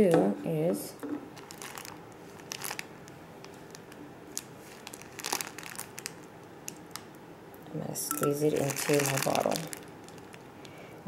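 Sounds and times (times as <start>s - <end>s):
plastic bag crinkling: 1.3s - 7.2s, 8.2s - 10.8s.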